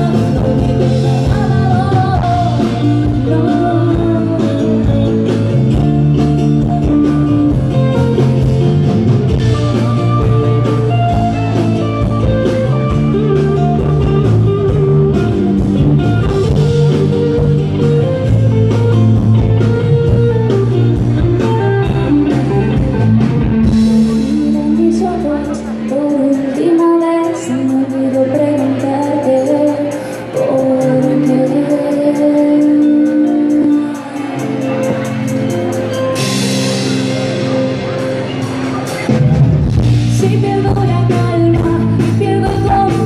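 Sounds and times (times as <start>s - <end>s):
drums keeping a steady beat: 0.0s - 43.0s.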